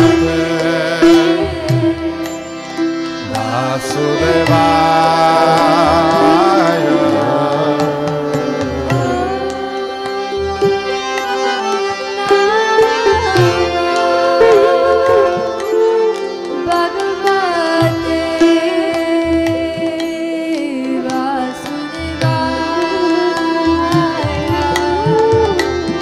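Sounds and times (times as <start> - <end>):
voices singing long notes: 0.0 - 18.8
harmonium chords: 0.0 - 26.0
sitar: 0.0 - 26.0.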